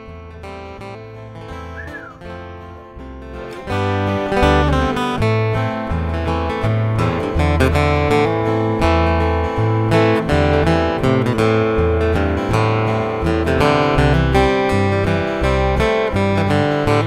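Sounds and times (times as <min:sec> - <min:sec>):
acoustic guitar strummed and picked: 0:00.0 - 0:17.0
low bass notes: 0:00.0 - 0:17.0.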